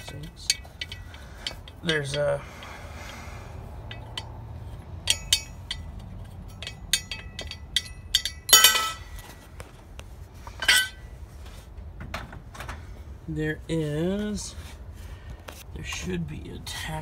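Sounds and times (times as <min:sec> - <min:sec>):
light metallic clicks and clinks: 0:00.0 - 0:03.2, 0:03.8 - 0:09.3
metal clanks: 0:00.0 - 0:09.6, 0:10.5 - 0:11.1.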